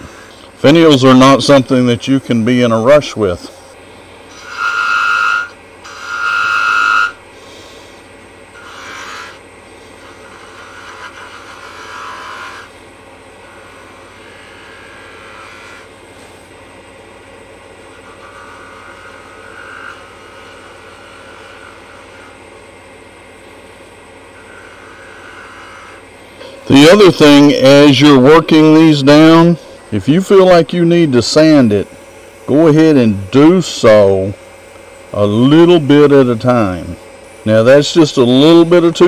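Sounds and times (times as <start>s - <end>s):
lathe hum: 0.0s - 39.0s
turning tool squealing on wood: 4.3s - 12.8s, 13.4s - 16.4s, 17.8s - 22.6s, 24.2s - 31.8s
tool scraping wood: 4.3s - 16.6s, 17.9s - 22.4s, 24.3s - 29.9s.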